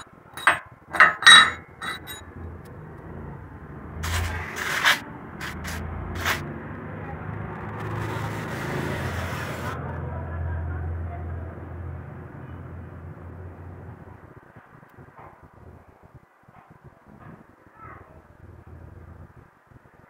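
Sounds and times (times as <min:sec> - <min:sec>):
scraping: 0:00.0 - 0:02.2
metal knocks and clinks: 0:00.0 - 0:02.3.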